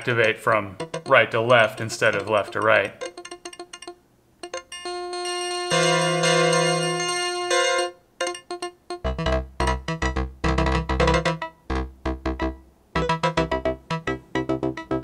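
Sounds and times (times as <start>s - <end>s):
low bass note: 9.1s - 13.8s.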